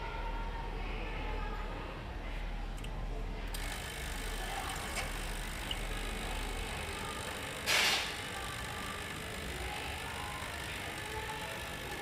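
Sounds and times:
espresso machine hiss: 3.6s - 11.5s
espresso machine pump hum: 3.6s - 12.0s.

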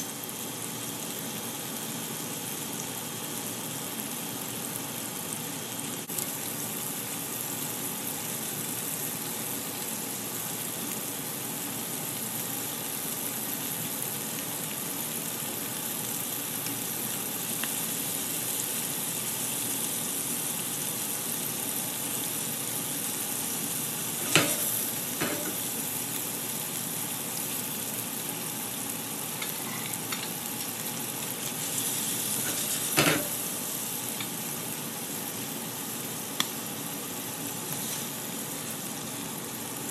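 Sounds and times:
shrimp sizzling in a pan: 0.0s - 39.9s
utensils clicking against pan: 24.2s - 25.6s, 29.4s - 30.4s.

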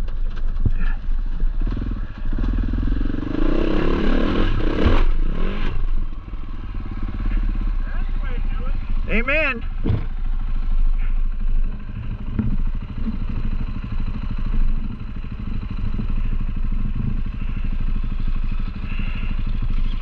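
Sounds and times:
knocks and rattle: 0.0s - 1.4s, 9.7s - 10.3s, 11.9s - 17.4s
motorcycle engine running: 0.0s - 20.0s.

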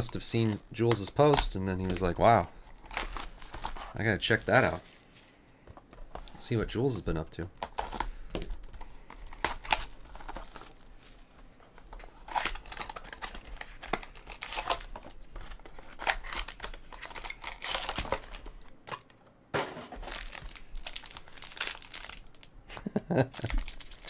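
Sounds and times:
plastic shrink-wrap crinkling and tearing: 0.0s - 5.2s, 7.6s - 8.1s, 9.2s - 11.3s, 12.2s - 18.7s, 20.0s - 24.0s
foil pack crinkling: 0.0s - 5.3s, 7.6s - 11.4s, 12.2s - 19.0s, 19.9s - 24.0s.

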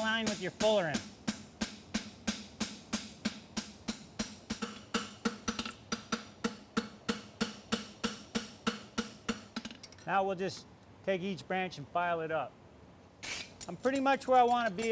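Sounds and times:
hammer striking horseshoe on anvil: 0.0s - 9.9s, 13.8s - 14.9s.

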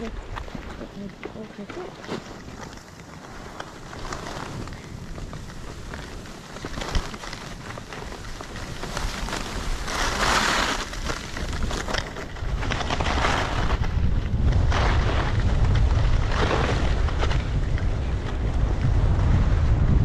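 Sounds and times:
skis scraping over snow: 0.0s - 20.0s
wind rumble on microphone: 0.0s - 20.0s.

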